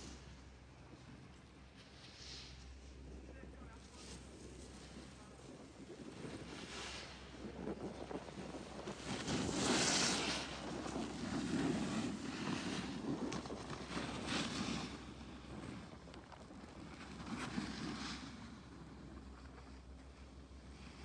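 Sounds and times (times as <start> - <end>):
skis scraping on snow: 1.0 - 21.0
wind on microphone: 4.2 - 19.4.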